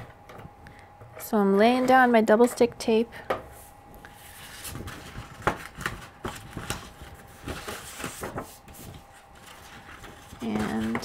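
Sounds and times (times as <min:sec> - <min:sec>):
paper rustling: 0:04.1 - 0:11.0.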